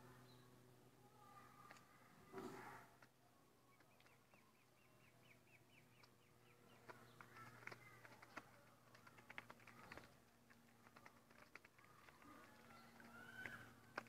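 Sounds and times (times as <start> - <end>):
ducklings peeping: 3.7 - 14.0.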